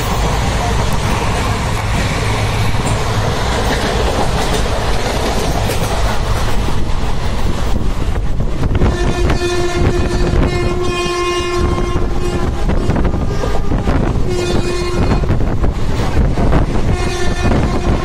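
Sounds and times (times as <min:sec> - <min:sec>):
train rumbling and wheels clattering: 0:00.0 - 0:18.0
train horn blasts: 0:08.7 - 0:15.4, 0:16.8 - 0:18.0.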